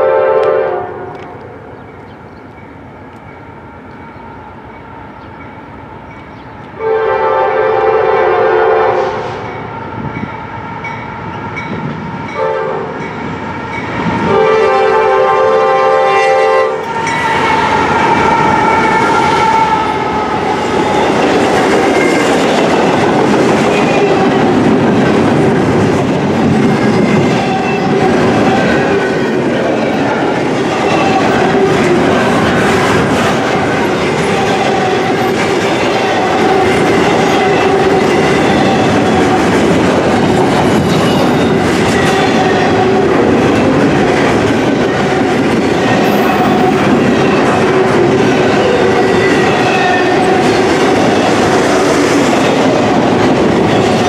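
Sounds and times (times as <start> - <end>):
locomotive air horn blasts: 0.0 - 1.2, 6.8 - 9.8, 12.4 - 13.0, 14.2 - 21.0
train cars rumbling and clattering: 0.0 - 54.0.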